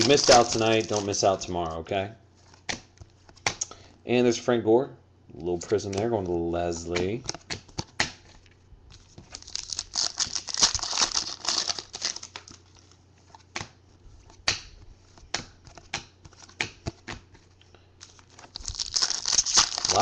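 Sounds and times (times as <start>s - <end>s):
plastic card holder crinkling: 0.0s - 1.5s, 18.0s - 20.0s
cards clicking and snapping: 6.9s - 8.3s, 13.5s - 17.4s, 18.0s - 20.0s.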